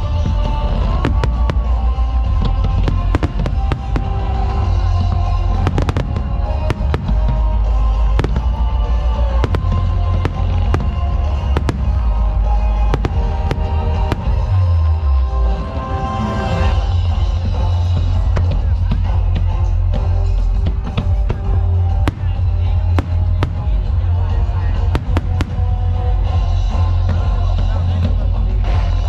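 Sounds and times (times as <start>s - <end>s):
loud music with heavy bass: 0.0s - 29.0s.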